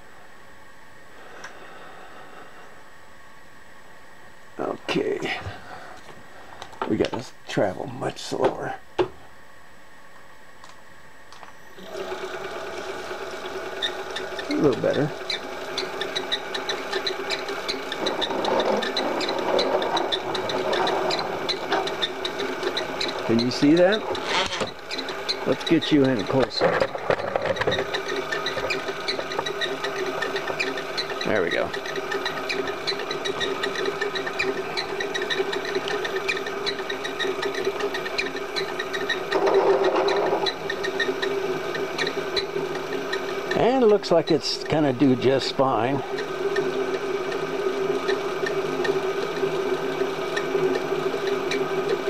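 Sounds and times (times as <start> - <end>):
milling machine cutting: 11.8 - 52.0.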